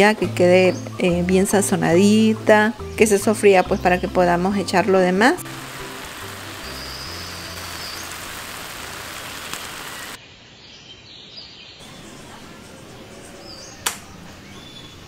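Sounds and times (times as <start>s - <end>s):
meat and vegetables sizzling in a skillet: 5.4s - 10.2s.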